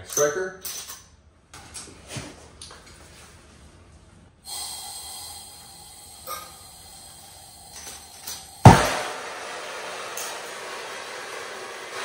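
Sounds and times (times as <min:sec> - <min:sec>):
gas torch hissing: 0:04.4 - 0:12.0.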